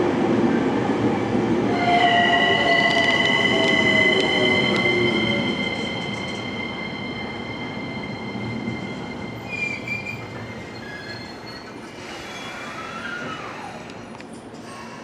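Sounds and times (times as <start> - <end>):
electric train rolling: 0.6 - 15.0
high steady brake squeal: 2.2 - 13.8.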